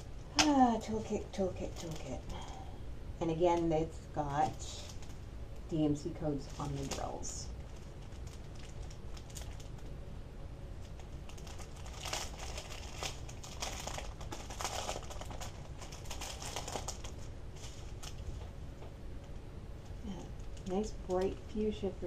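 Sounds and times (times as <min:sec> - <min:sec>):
plastic bags crinkling: 0:00.0 - 0:02.7, 0:04.3 - 0:05.2, 0:05.8 - 0:10.0, 0:10.8 - 0:18.5.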